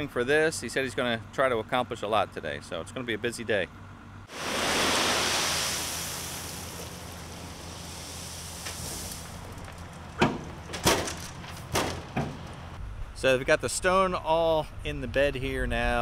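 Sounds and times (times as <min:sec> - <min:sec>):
stones pouring from truck bed: 0:04.3 - 0:12.4
truck engine running: 0:06.5 - 0:12.9.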